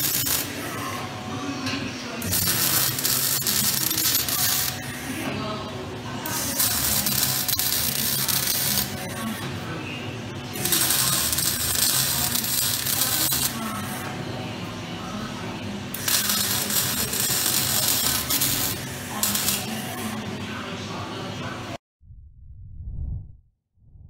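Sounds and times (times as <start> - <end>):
welding arc crackling and hissing: 0.0 - 1.0, 2.2 - 5.2, 6.3 - 9.4, 10.6 - 14.0, 15.9 - 20.2.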